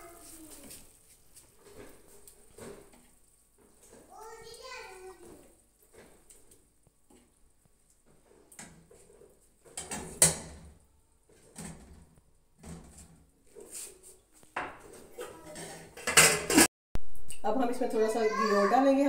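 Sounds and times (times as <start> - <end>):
metal spoon scraping frying pan: 14.8 - 16.7.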